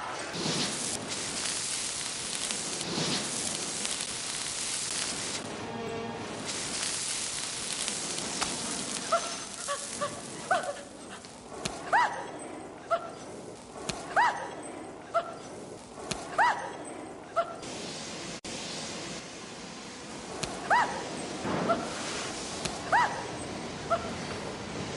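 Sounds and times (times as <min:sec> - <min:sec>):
blowtorch flame hissing: 0:00.2 - 0:05.5, 0:06.2 - 0:12.4, 0:17.6 - 0:24.9.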